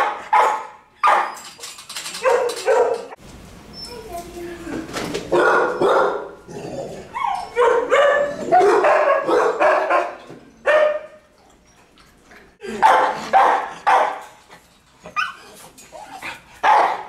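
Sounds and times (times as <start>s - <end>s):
dogs barking: 0.0s - 1.4s, 2.2s - 3.2s, 5.3s - 11.3s, 12.7s - 14.4s, 16.6s - 17.0s.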